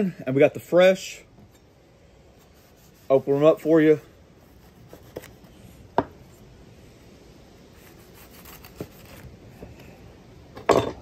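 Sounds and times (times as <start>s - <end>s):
knife slicing through buns: 7.8s - 9.3s.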